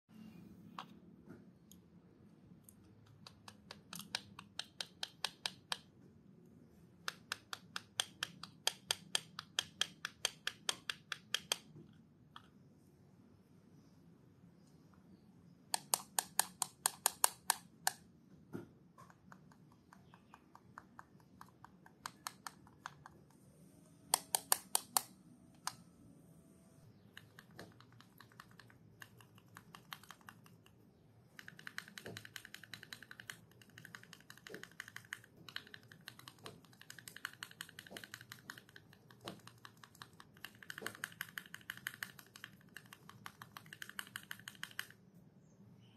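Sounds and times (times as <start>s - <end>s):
plastic keycaps clicking: 3.0s - 5.9s, 7.1s - 11.7s, 15.8s - 18.0s, 19.1s - 23.3s, 24.2s - 25.8s, 27.1s - 45.0s.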